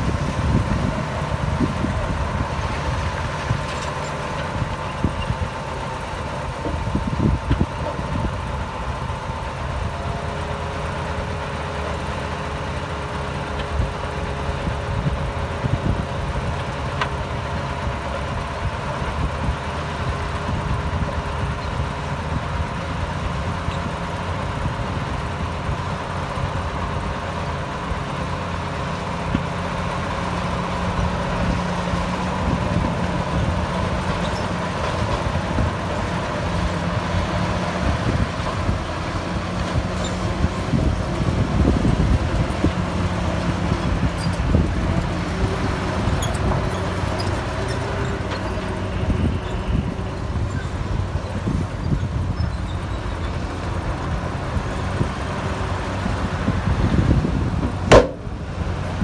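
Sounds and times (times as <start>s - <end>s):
heavy machinery diesel engine: 0.0s - 59.0s
knocks and clatter: 57.6s - 58.3s.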